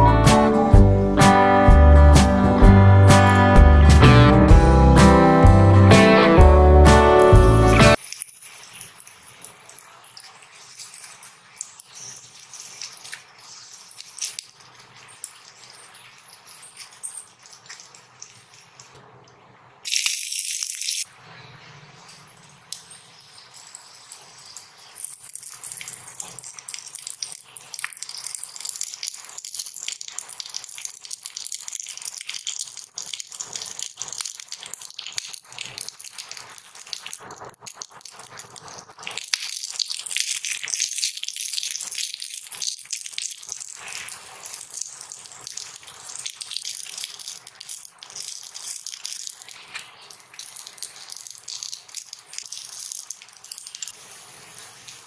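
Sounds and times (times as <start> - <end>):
hot oil sizzling and popping: 0.0 - 55.0
spoon scraping and rattling in pot: 8.0 - 19.0.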